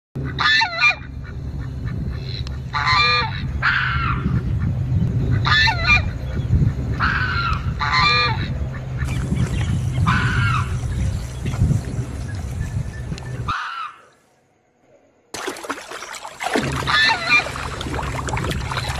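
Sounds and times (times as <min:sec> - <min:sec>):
geese honking: 0:00.2 - 0:04.4, 0:05.3 - 0:06.2, 0:07.0 - 0:11.4, 0:13.1 - 0:14.2, 0:16.8 - 0:18.9
steady low hum: 0:00.2 - 0:13.5.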